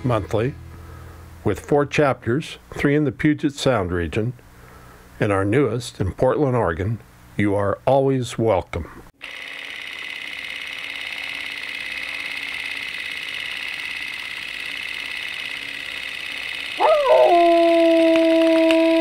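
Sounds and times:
film projector whirr: 9.2 - 19.0
dog howling: 16.8 - 19.0.

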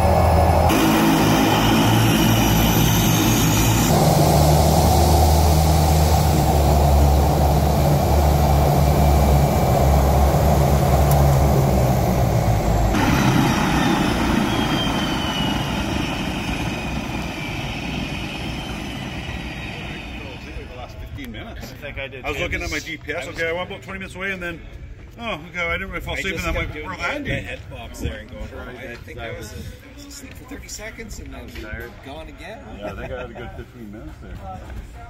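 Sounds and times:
propeller engine running: 0.0 - 21.2.

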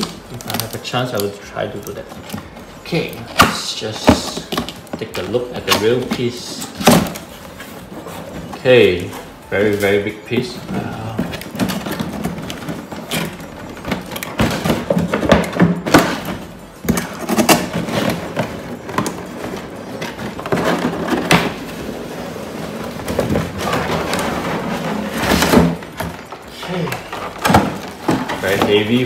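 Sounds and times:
cardboard box scraping and rustling: 17.0 - 25.8.

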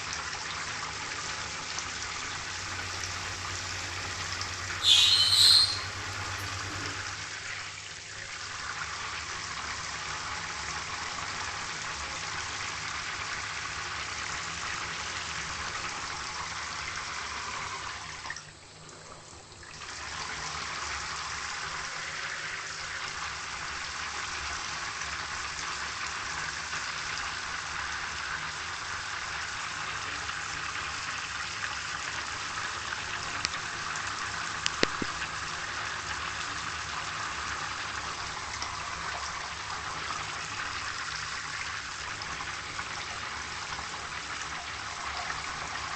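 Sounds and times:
running water hiss: 1.4 - 7.8
short loud sharp sound: 4.8 - 6.0.

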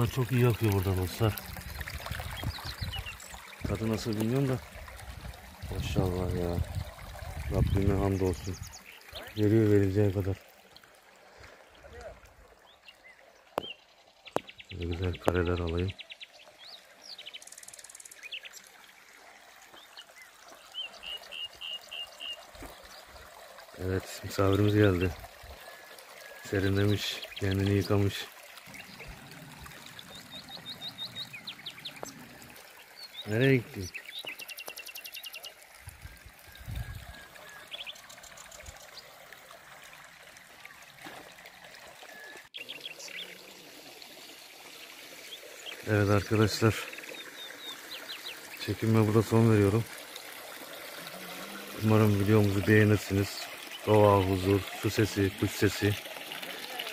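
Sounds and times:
small birds chirping and trilling: 0.0 - 10.4, 11.2 - 56.9
water trickling into troughs: 0.0 - 56.9
bird chirps: 12.6 - 18.7.

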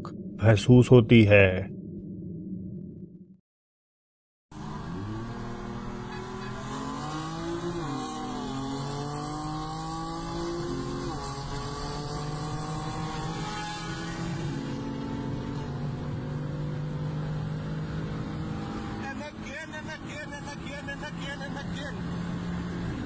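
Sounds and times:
car engine pulling hard: 4.5 - 23.0
road and wind noise: 4.5 - 23.0.

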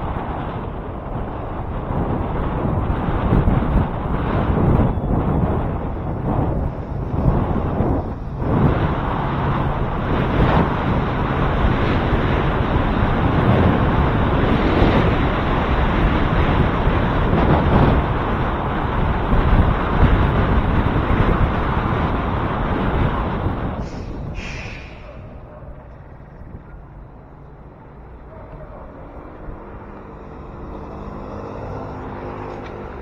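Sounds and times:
road rumble: 0.0 - 33.0
wind buffeting microphone: 0.0 - 33.0.

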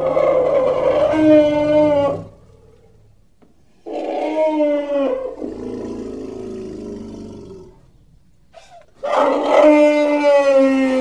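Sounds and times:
elephant calling: 0.0 - 2.7.

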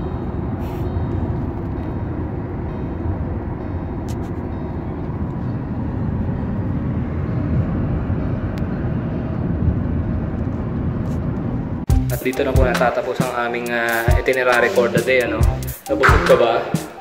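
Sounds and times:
car cabin road rumble: 0.0 - 11.9.

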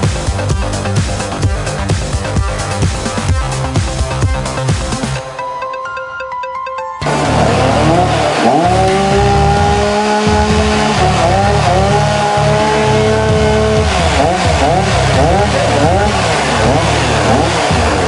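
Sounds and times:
saw engine revving: 7.0 - 18.0.

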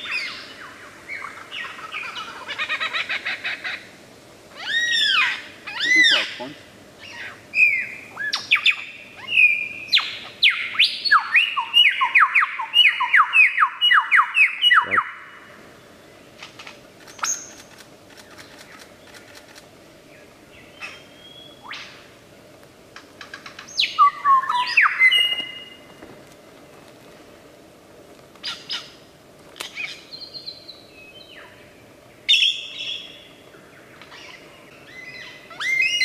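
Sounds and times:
bird whistled song: 7.0 - 15.2, 20.6 - 22.0, 23.7 - 25.8, 32.3 - 33.3, 34.1 - 36.0.

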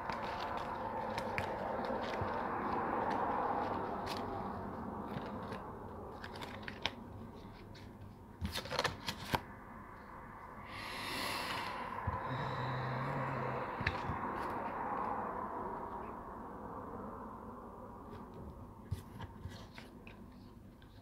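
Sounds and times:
cards riffling: 0.0 - 9.4.

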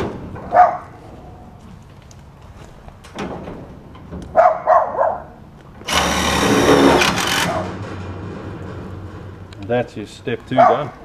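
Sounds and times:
cordless drill motor whine: 5.9 - 7.5.

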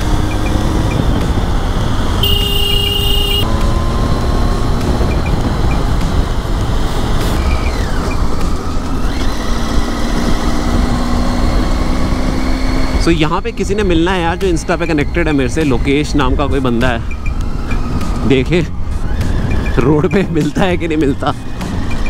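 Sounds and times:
motorcycle engine running: 0.0 - 11.4
steady high tone: 2.2 - 3.5.

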